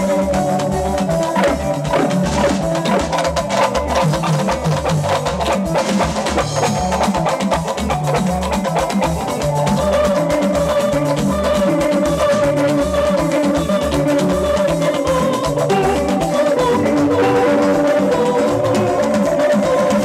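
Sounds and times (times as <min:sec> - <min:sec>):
bass line: 0:00.0 - 0:13.4
drum kit beat: 0:00.0 - 0:20.0
electric guitar: 0:00.0 - 0:20.0.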